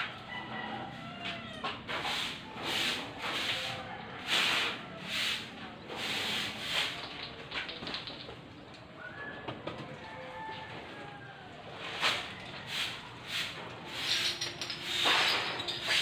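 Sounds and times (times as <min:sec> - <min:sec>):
broom sweeping concrete: 0:01.1 - 0:08.2, 0:11.7 - 0:16.0.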